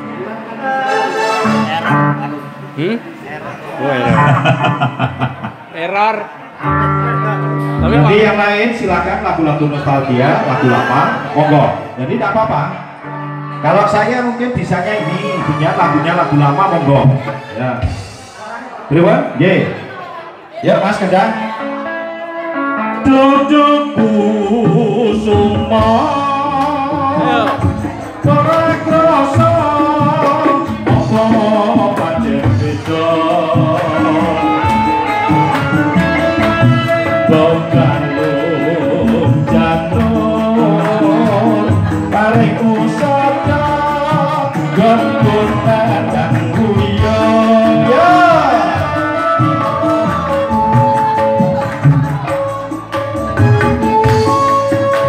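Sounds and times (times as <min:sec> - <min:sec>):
man singing through microphone: 0:00.0 - 0:05.3, 0:06.6 - 0:55.0
music with steady beat: 0:22.6 - 0:55.0.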